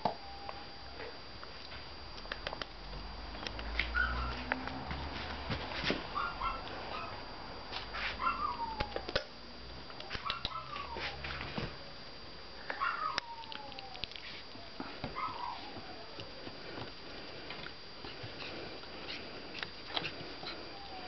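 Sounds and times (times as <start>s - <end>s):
puppy whining: 3.8s - 4.6s, 6.2s - 7.2s, 8.2s - 9.2s, 10.0s - 11.5s, 12.6s - 16.8s, 18.0s - 21.0s.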